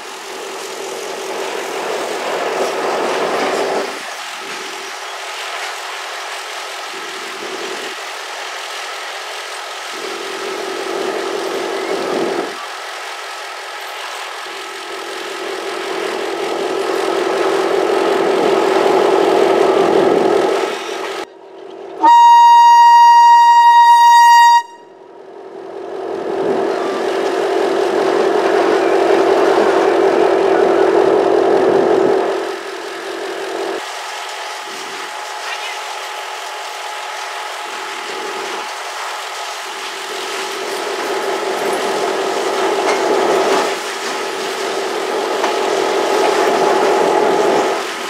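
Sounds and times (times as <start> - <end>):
diesel locomotive engine drone: 0.0 - 48.0
loud train horn: 22.0 - 25.0.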